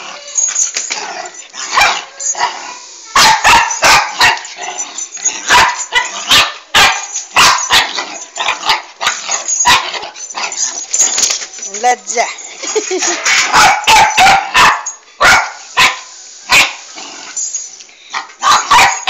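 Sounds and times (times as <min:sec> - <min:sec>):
dog barking: 0:01.7 - 0:02.1, 0:03.2 - 0:04.4, 0:05.5 - 0:08.0, 0:13.3 - 0:16.8, 0:18.4 - 0:19.0.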